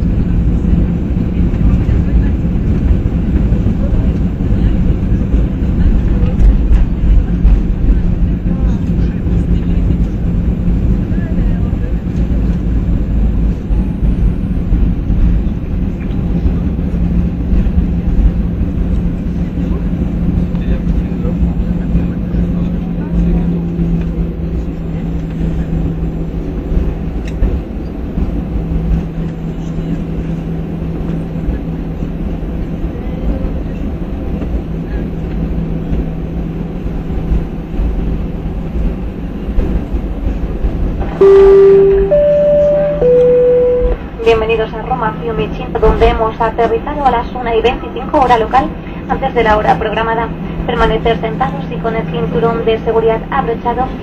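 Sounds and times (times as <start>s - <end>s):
aircraft wheels and engines rumble: 0.0s - 54.0s
constant low hum: 0.0s - 54.0s
steady low hum: 41.2s - 44.7s.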